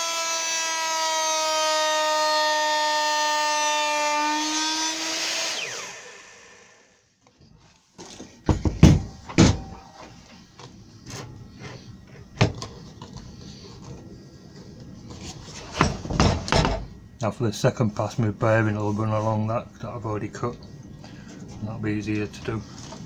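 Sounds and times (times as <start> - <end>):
router spinning down: 0.0 - 7.0
router high whine: 0.0 - 7.2.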